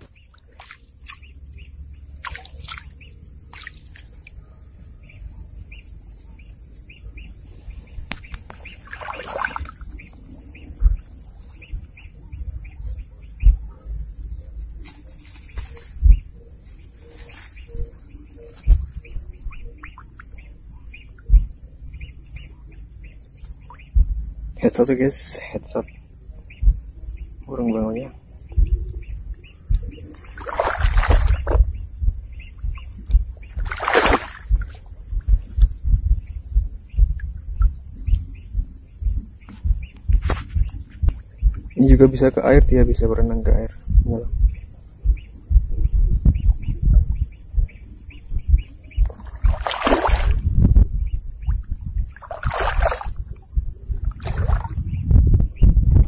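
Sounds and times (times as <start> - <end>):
swamp water splashing: 0.0 - 4.4, 8.0 - 12.1, 29.0 - 38.5, 47.2 - 50.6, 51.4 - 55.0
low thumps: 7.8 - 15.1, 15.9 - 16.4, 17.6 - 24.8, 25.8 - 56.0
low rumble: 9.6 - 24.7, 25.8 - 56.0.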